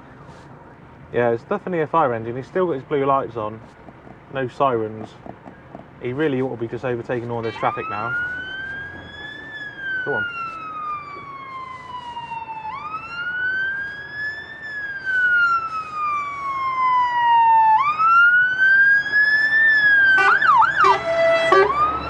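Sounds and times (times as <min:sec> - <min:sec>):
fire engine siren wailing: 0:07.4 - 0:22.0.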